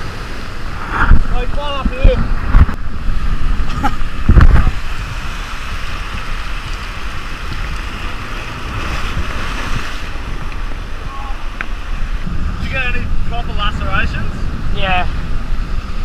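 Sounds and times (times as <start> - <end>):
surf breaking over rocks: 0.0 - 16.0
wind rumbling on microphone: 0.0 - 16.0.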